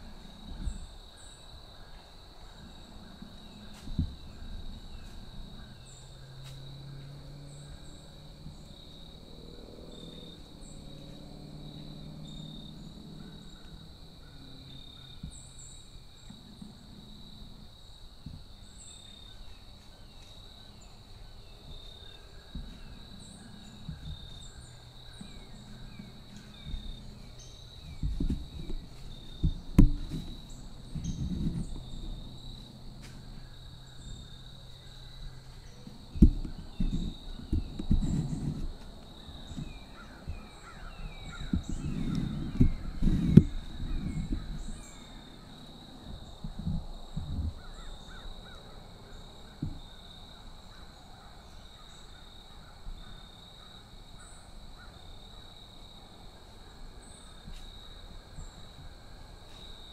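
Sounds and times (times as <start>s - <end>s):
insects droning: 0.0s - 59.9s
camera handling knocks and rustles: 27.9s - 31.8s.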